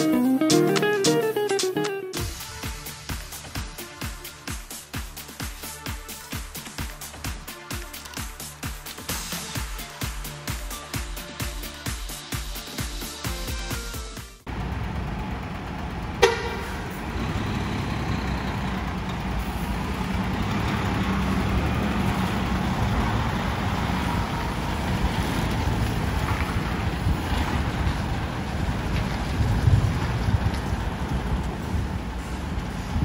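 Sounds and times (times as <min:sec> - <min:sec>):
diesel truck engine rumbling: 0:14.4 - 0:33.0
truck horn toot: 0:16.1 - 0:19.6.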